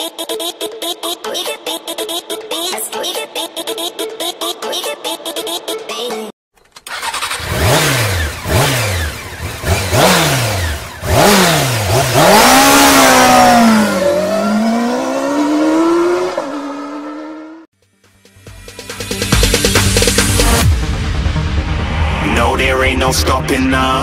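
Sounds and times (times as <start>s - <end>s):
motorcycle engine revving: 6.9s - 17.7s
electronic music: 18.2s - 24.0s.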